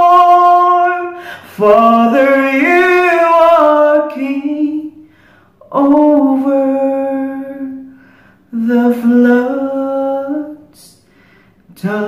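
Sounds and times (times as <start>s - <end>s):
man singing unaccompanied: 0.0s - 7.9s, 8.5s - 11.0s, 11.7s - 12.0s.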